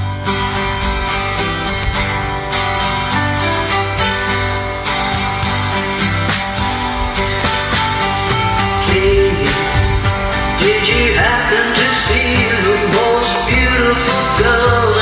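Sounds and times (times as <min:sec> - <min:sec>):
strummed guitar backing track: 0:00.0 - 0:15.0
woman singing: 0:08.8 - 0:09.8.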